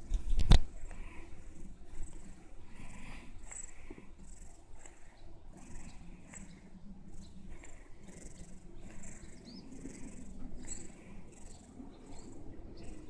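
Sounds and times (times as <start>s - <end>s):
low steady hum: 0.0s - 13.0s
cat breathing softly: 0.8s - 13.0s
faint squeaky whistles: 9.6s - 13.0s.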